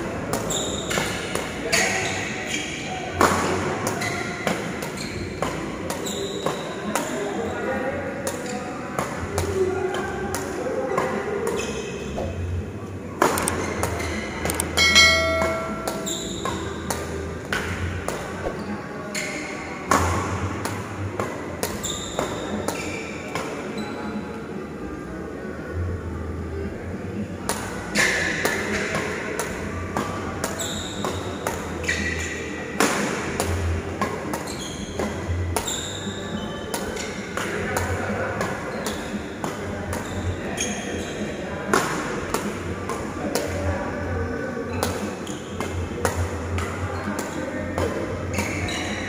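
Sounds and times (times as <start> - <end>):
sports shoes squeaking on court: 0.4 - 2.9, 3.9 - 7.6, 11.4 - 12.4, 13.4 - 17.2, 18.4 - 19.7, 21.6 - 23.1, 30.5 - 32.6, 34.2 - 37.2, 39.9 - 41.3, 48.2 - 49.0
badminton racket hitting shuttlecock: 14.4 - 18.6
bright chime: 14.8 - 16.1
higher ding: 14.8 - 16.4.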